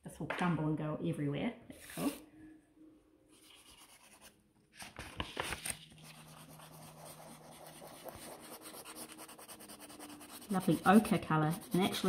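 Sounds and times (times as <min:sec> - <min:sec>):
clay scratching on paper: 0:06.0 - 0:12.0.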